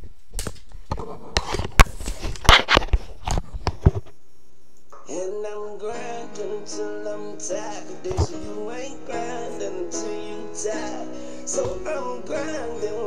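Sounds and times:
rustling and clicks at microphone: 0.0 - 4.2
plucked guitar background music: 5.0 - 13.0.

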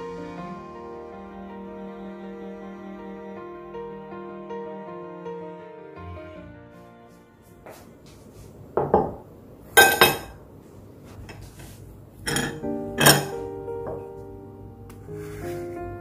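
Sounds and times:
soft piano music: 0.0 - 8.0, 12.2 - 16.0
plate and knife clinking on table: 9.8 - 10.4, 12.2 - 14.0.

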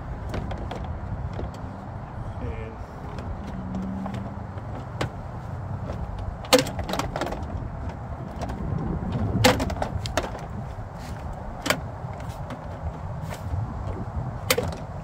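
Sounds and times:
low steady rumble: 0.0 - 15.0
plastic trim clicks and knocks: 5.8 - 8.8, 14.4 - 15.0.

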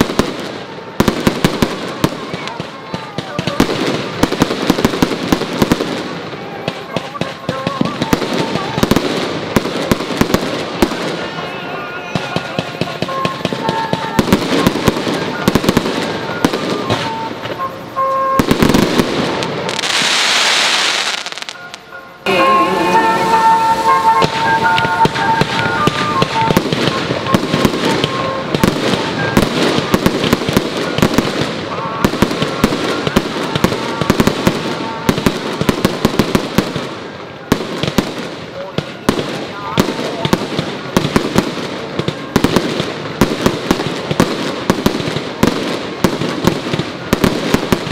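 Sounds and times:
fireworks bangs and crackles: 0.0 - 47.9
loud hissing rush: 0.0 - 47.9.

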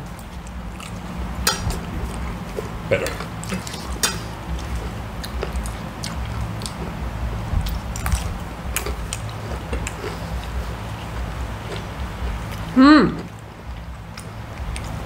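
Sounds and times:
chewing and biting food: 0.0 - 15.0
steady low hum: 0.0 - 15.0
cutlery clicking against plates: 1.4 - 1.8, 3.6 - 4.3.

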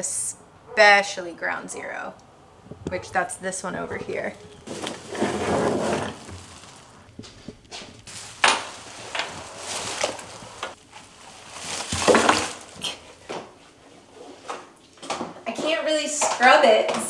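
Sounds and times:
nylon straps rustling: 4.0 - 14.5.

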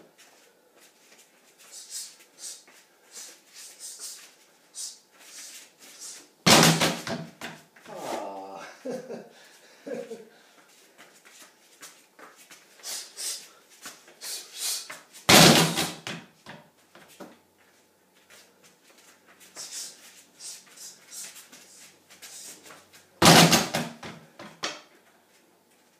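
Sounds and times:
short scuffs: 0.2 - 8.3, 10.6 - 16.3, 17.0 - 24.2
strikes on heavy bag: 6.5 - 7.6, 15.3 - 16.3, 23.2 - 24.2.

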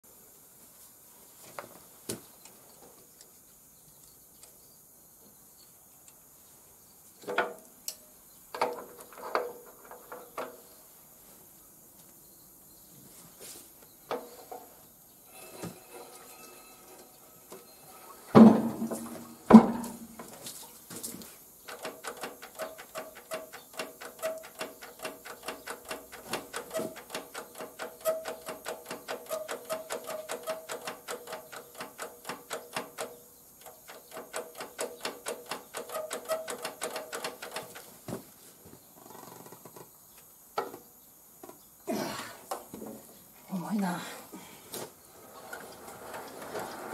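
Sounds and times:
metallic knocks on engine: 18.4 - 20.0.

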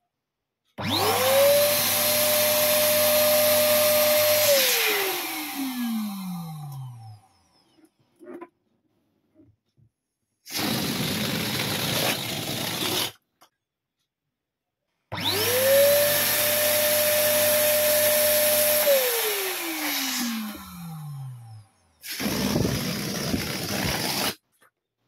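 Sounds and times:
electric balloon pump whine: 0.8 - 7.6, 15.1 - 24.4
air rushing from deflating balloon: 22.0 - 24.4.

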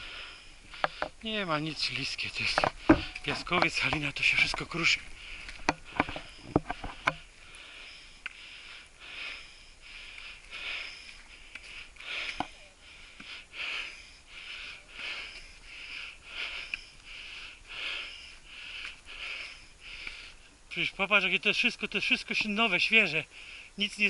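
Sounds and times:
person breathing hard: 0.0 - 1.2, 5.0 - 20.6, 23.3 - 23.8.

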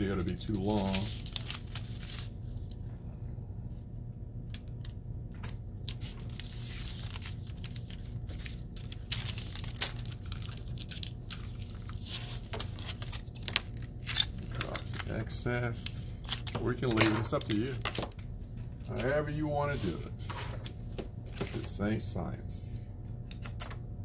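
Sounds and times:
foil tape crinkling and crackling: 0.0 - 2.8, 4.4 - 20.0.

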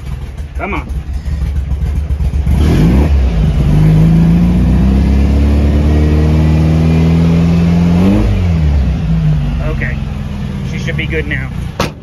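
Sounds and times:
engine running at rowdy idle: 0.0 - 4.4, 8.5 - 12.0.

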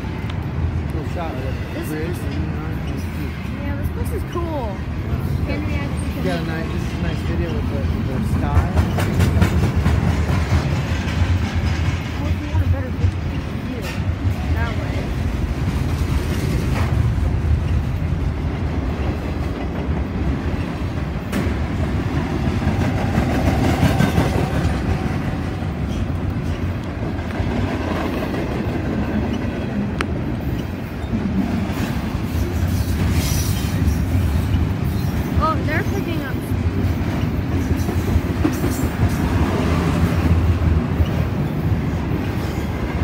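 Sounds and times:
sharp clicks of train wheels: 0.0 - 43.0
train wheels on rails: 0.0 - 43.0.

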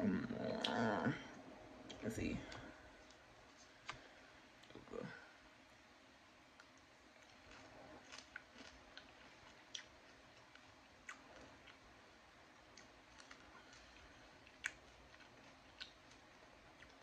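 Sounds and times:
crisp chewing clicks: 12.7 - 17.0.

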